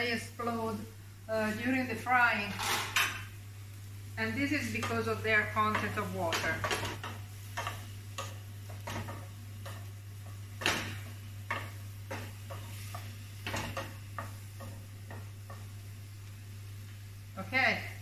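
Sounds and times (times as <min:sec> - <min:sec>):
faint frying sizzle: 0:00.0 - 0:18.0
wooden spatula knocking a pan: 0:04.7 - 0:15.8.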